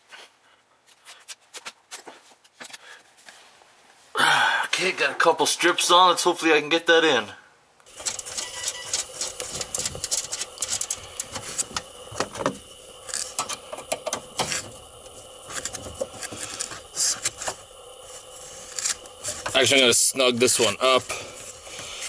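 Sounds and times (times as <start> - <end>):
small metallic clicks and scrapes: 7.8 - 11.8.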